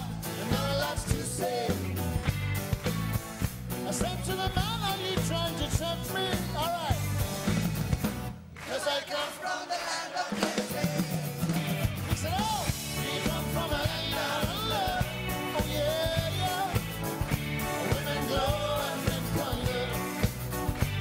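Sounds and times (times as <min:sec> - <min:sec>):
person singing over a band: 0:00.0 - 0:02.0, 0:09.0 - 0:17.0, 0:17.6 - 0:20.4
steady bass line: 0:00.0 - 0:08.5, 0:11.1 - 0:21.0.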